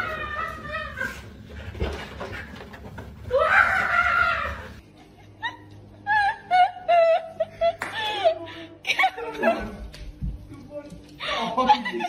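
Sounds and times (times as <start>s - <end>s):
person laughing high-pitched: 11.2s - 12.0s.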